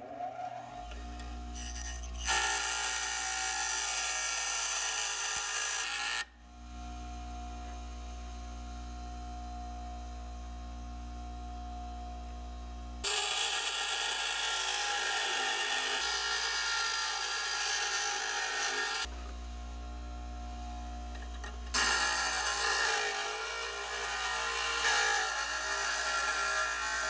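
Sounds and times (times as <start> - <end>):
bench grinder motor hum: 0.5 - 7.6, 13.0 - 27.0.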